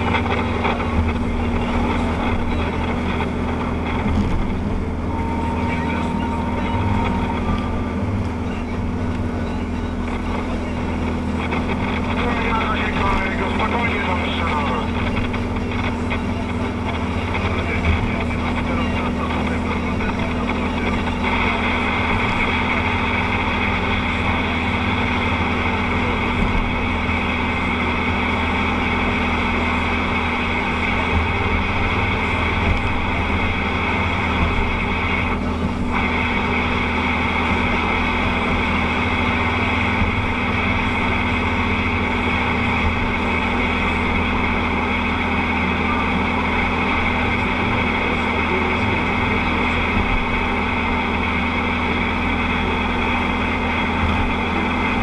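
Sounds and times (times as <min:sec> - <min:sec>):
engine hum inside vehicle: 0:00.0 - 0:55.0
tyre noise on wet road: 0:00.0 - 0:55.0.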